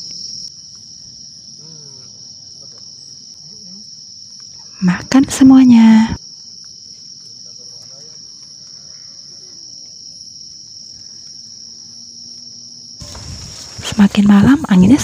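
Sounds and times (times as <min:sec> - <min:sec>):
crickets trilling: 0:00.0 - 0:15.0
wind noise: 0:13.0 - 0:15.0.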